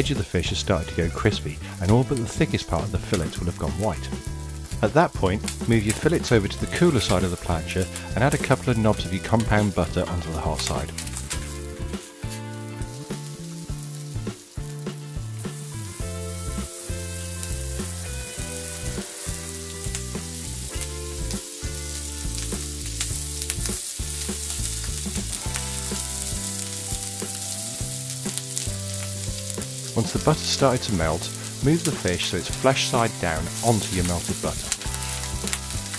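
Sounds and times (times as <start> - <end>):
butter and fish sizzling on griddle: 0.4 - 35.9.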